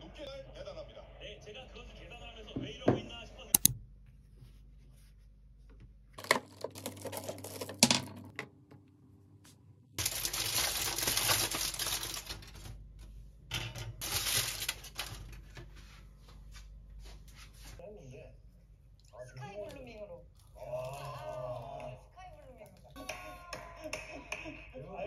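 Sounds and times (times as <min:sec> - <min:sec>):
clicks: 0:03.6 - 0:03.8
aluminium foil crinkling: 0:06.2 - 0:07.8, 0:10.0 - 0:12.8, 0:14.0 - 0:15.7.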